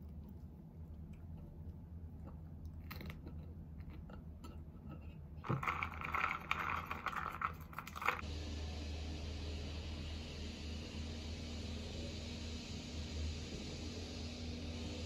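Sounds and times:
faint chewing: 0.0 - 5.8
slurping through a straw: 5.4 - 8.2.

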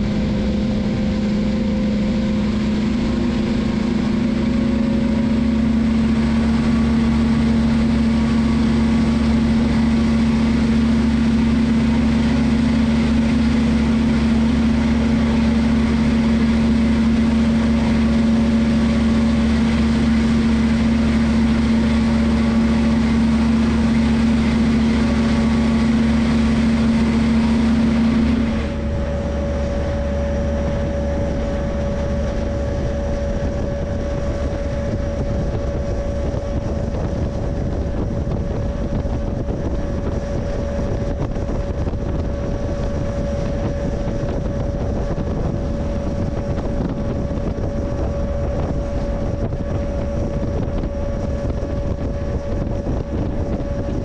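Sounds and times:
diesel locomotive engine hum: 0.0 - 54.0.

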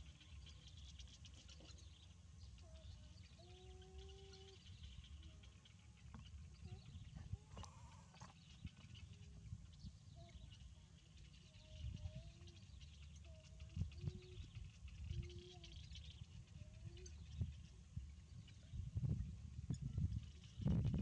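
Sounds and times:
faint high chirps: 0.0 - 21.0
faint animal call: 2.6 - 5.8, 6.5 - 8.4, 13.2 - 15.9
low rumble: 4.7 - 21.0.

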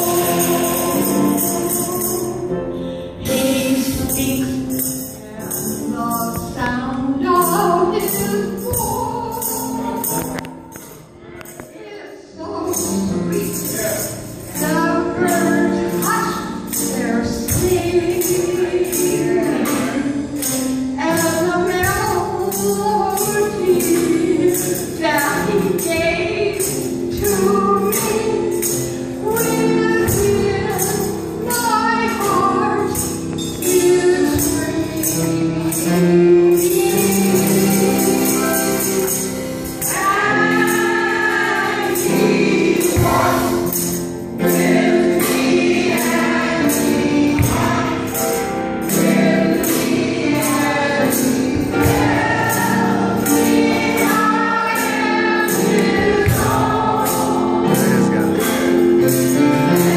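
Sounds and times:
voices singing along: 0.0 - 10.3, 36.4 - 58.4
woman singing gospel song: 0.0 - 10.5, 11.4 - 57.9.

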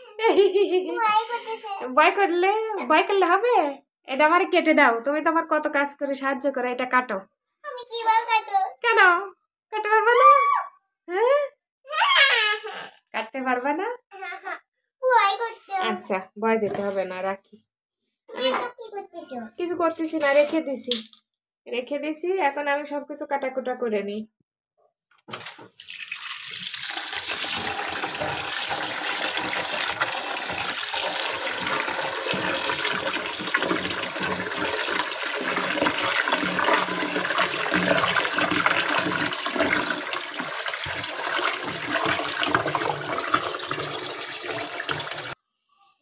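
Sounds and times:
tap water running into pot: 25.3 - 45.4.

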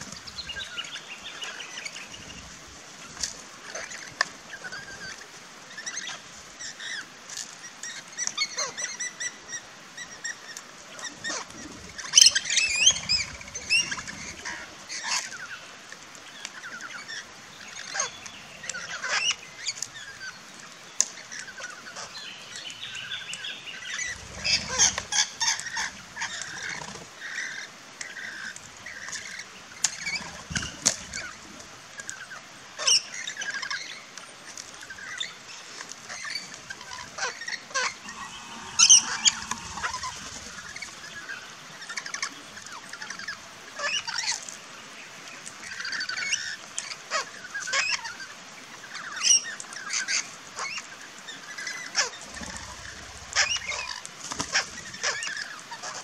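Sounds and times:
parrots chirping and screeching: 23.8 - 28.4, 36.1 - 42.2, 51.6 - 56.0
wing flaps: 38.0 - 41.1.

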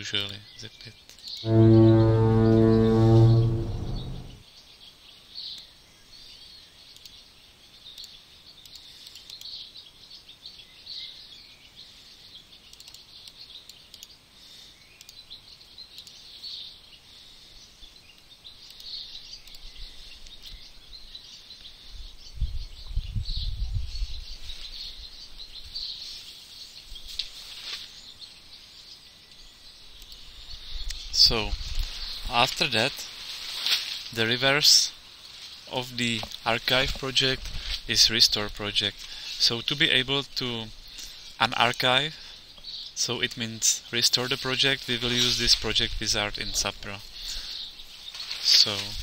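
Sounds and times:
low rumble: 1.5 - 4.4
click: 7.0 - 7.2, 12.7 - 14.2, 16.0 - 16.2, 30.0 - 30.2.

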